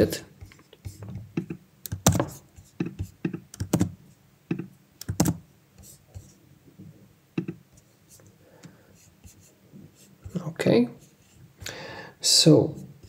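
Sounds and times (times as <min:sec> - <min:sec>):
keyboard and mouse clicking: 0:01.4 - 0:05.4.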